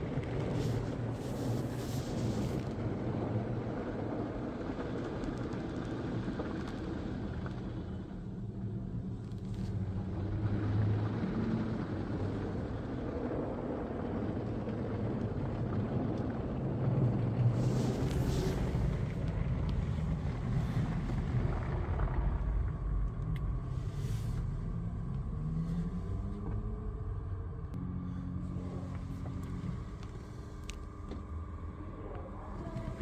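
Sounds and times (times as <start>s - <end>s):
low hum of car wash machinery: 0.0s - 33.0s.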